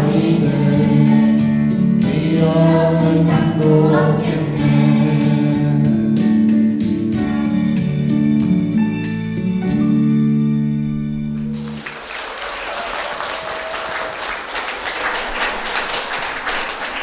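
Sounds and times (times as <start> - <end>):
children's choir singing: 0.0 - 6.2
guitar accompaniment: 0.0 - 11.8
audience applauding: 11.4 - 17.0.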